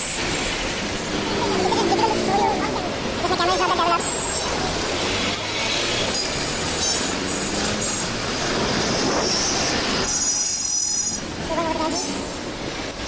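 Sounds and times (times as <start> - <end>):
road traffic noise: 0.0 - 13.0
high squeal: 8.8 - 12.4.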